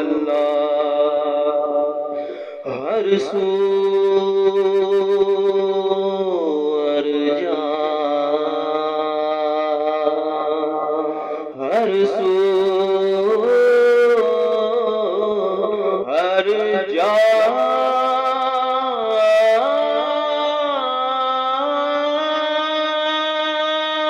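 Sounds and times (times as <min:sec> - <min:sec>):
man singing chant-like: 0:00.0 - 0:24.0.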